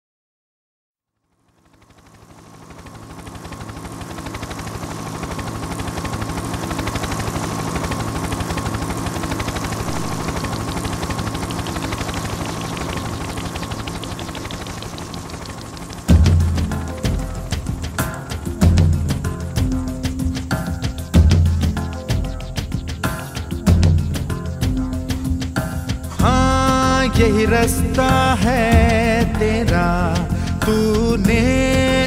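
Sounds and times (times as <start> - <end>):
thin steady high tone: 2.6 - 16.1
rapid pulsing music: 2.8 - 32.0.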